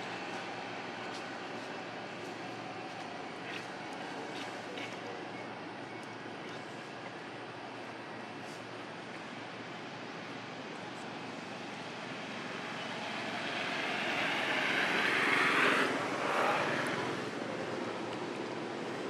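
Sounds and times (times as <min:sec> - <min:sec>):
passing engine: 0:12.6 - 0:18.1.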